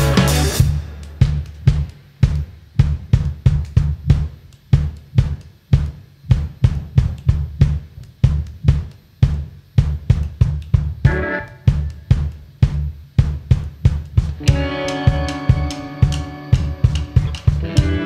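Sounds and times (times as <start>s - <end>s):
drum kit beating: 0.0s - 18.0s
electric bass line: 0.0s - 18.0s.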